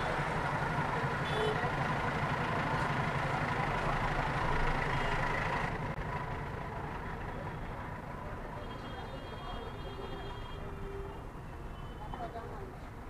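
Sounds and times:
car engine idling: 0:00.0 - 0:10.0
low traffic hum: 0:00.0 - 0:13.0.

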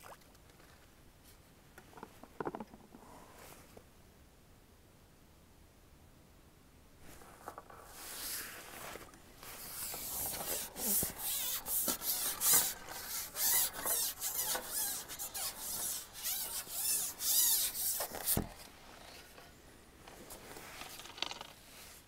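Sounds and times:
fishing pole rubbing through hands: 0:07.8 - 0:18.4.

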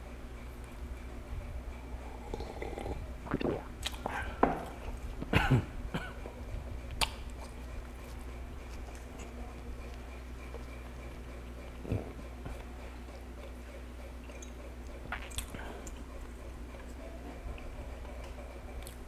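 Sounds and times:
sipping and swallowing: 0:02.2 - 0:04.8, 0:14.3 - 0:16.0
person coughing: 0:05.3 - 0:06.2.

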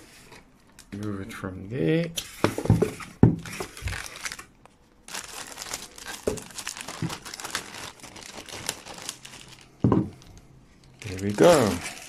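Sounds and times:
plastic bag crinkling: 0:03.4 - 0:04.5, 0:05.1 - 0:12.0.

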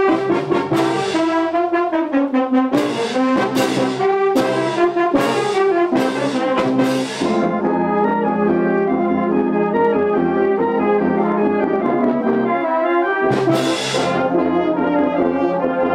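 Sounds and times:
brass band playing: 0:00.0 - 0:15.9.

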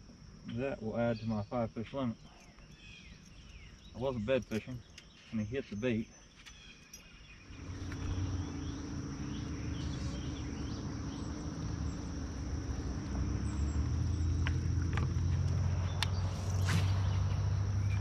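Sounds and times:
insects droning: 0:00.0 - 0:18.0
boat motor humming: 0:07.4 - 0:18.0.

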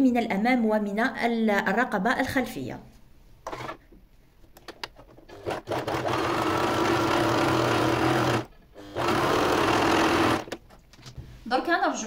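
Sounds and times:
sewing machine stitching: 0:03.5 - 0:03.8, 0:05.3 - 0:10.6.

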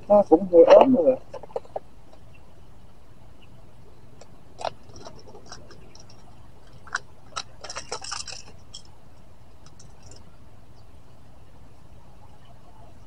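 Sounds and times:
fishing tackle clicks and rustles: 0:04.6 - 0:09.0, 0:09.6 - 0:10.3.

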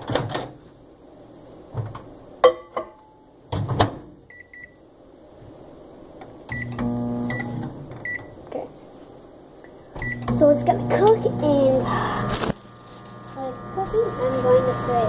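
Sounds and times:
microwave oven humming: 0:06.1 - 0:08.6, 0:09.6 - 0:15.0.

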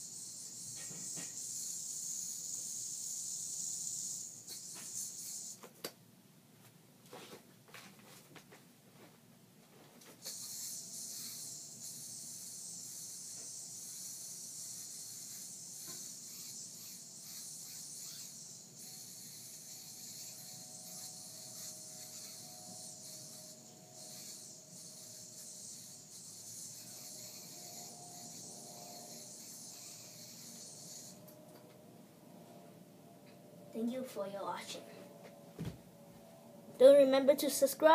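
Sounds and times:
yo-yo string hiss: 0:00.0 - 0:05.7
faint whine: 0:09.0 - 0:37.9.

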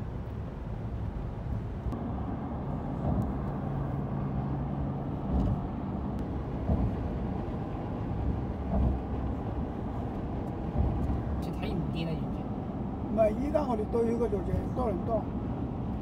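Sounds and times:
car road noise at highway speed: 0:00.0 - 0:16.0
low rumble of tyres and engine: 0:00.0 - 0:16.0
car bumps: 0:05.1 - 0:09.4.

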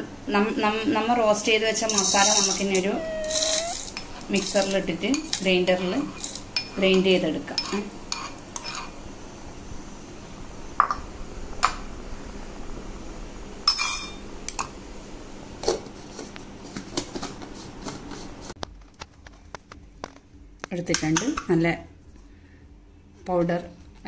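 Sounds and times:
clinks of metal utensils and dishes: 0:01.9 - 0:02.8, 0:13.7 - 0:14.2.

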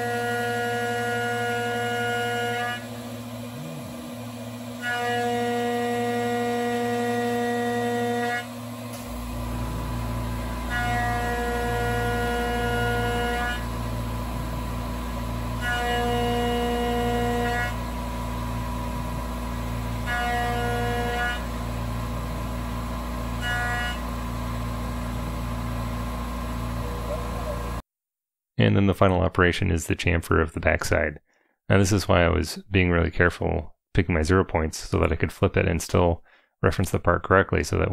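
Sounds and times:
machine hum: 0:00.0 - 0:27.8
milling cutter whine: 0:00.0 - 0:27.8.

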